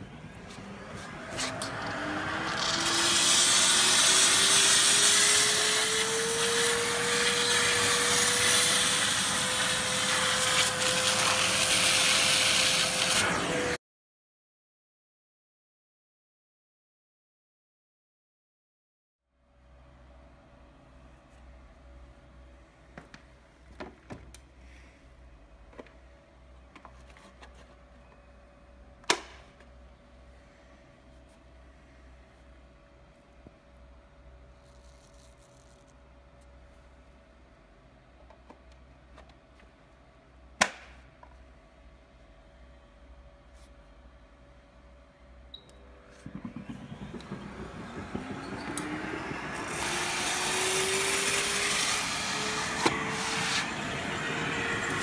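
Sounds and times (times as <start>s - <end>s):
steam cleaner hissing: 2.5s - 13.5s, 46.2s - 55.0s
motor tone: 45.6s - 51.5s.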